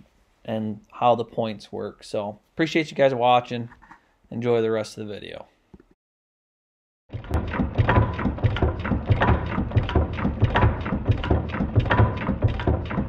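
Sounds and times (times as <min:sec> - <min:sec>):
engine clattering rhythmically: 0:07.1 - 0:13.0.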